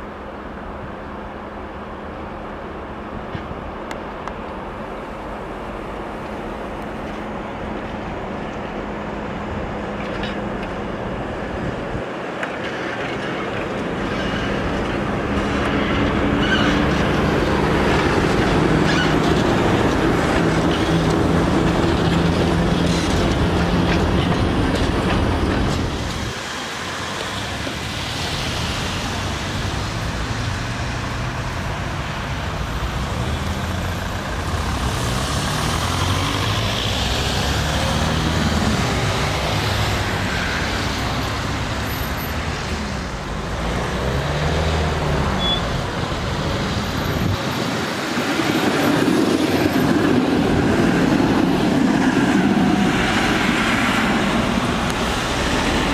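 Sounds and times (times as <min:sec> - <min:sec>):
electric locomotive hum: 0:00.0 - 0:33.3, 0:44.9 - 0:55.9
street traffic noise: 0:00.0 - 0:55.9
train wheels rumbling on rails: 0:00.0 - 0:55.9
tram approaching: 0:00.0 - 0:55.9.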